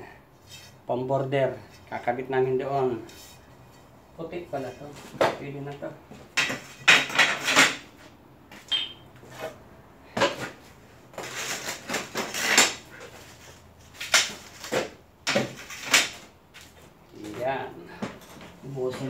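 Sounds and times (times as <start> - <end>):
tiles scraping: 6.4 - 8.1, 8.7 - 16.3.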